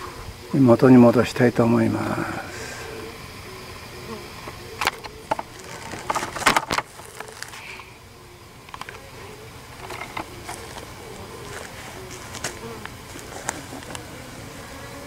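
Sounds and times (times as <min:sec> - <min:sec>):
bees buzzing faintly: 0:00.0 - 0:15.0
wooden board clattering: 0:04.8 - 0:07.4.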